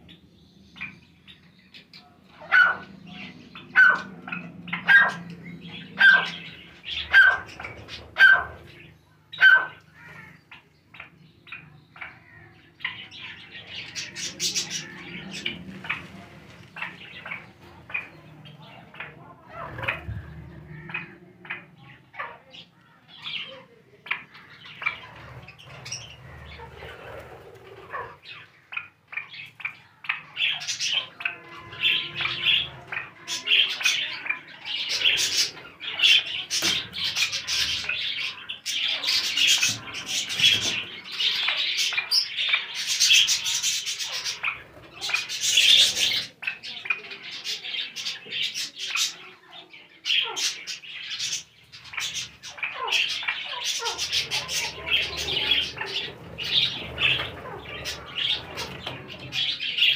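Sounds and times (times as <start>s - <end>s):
birds chirping and squawking: 0.0s - 59.9s.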